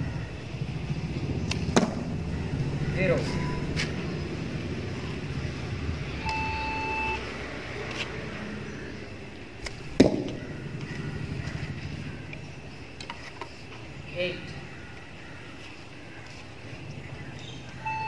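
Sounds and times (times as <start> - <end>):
brief steady tone: 3.3 - 3.8, 6.2 - 7.3.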